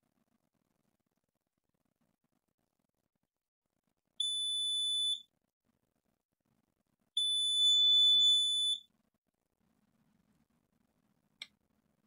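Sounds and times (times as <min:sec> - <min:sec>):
multimeter continuity beep: 0:04.2 - 0:05.3, 0:07.2 - 0:08.9.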